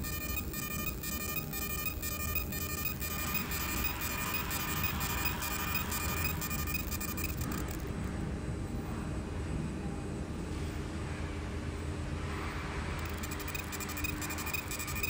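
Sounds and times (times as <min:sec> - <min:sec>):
high-pitched engraving crackle: 0:00.0 - 0:07.9, 0:13.0 - 0:15.0
laser machine low hum: 0:00.0 - 0:09.4, 0:13.0 - 0:15.0.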